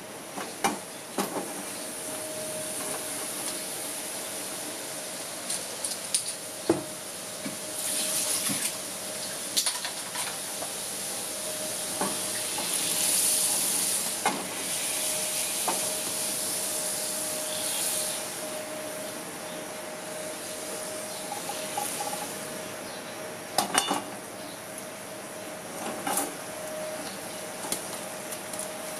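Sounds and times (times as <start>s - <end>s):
hot oil sizzling in a pan: 7.7s - 18.4s.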